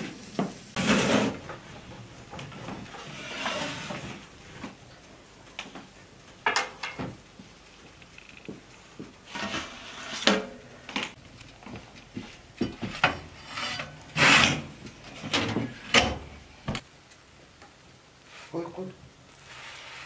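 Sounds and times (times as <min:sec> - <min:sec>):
wooden peel scraping metal tray: 0:00.8 - 0:01.6, 0:02.9 - 0:04.3, 0:09.3 - 0:10.6, 0:13.2 - 0:14.7.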